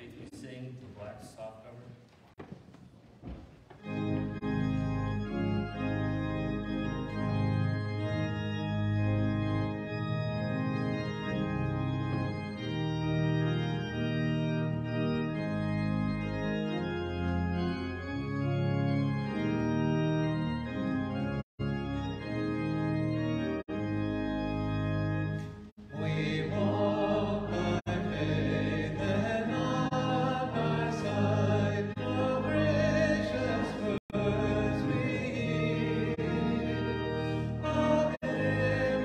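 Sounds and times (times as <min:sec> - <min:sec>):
church organ playing chords: 0:00.0 - 0:00.8, 0:03.7 - 0:39.0
congregation singing a hymn: 0:25.2 - 0:39.0.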